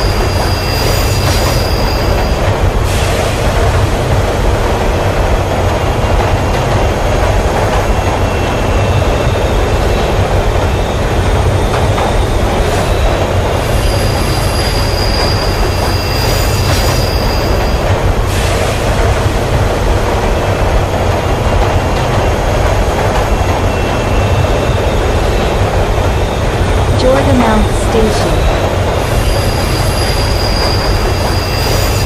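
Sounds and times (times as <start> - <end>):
high wheel squeal: 0.0 - 3.1, 13.6 - 17.8, 29.1 - 32.0
train rumble and wheel noise: 0.0 - 32.0.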